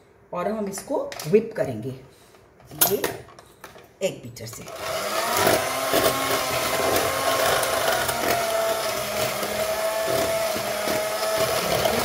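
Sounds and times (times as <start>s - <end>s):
electric hand mixer whining: 4.7s - 12.0s.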